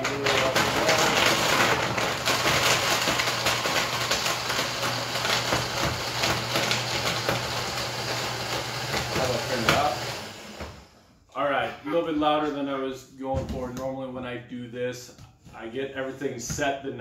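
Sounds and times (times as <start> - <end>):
blender grinding frozen fruit: 0.0 - 11.0.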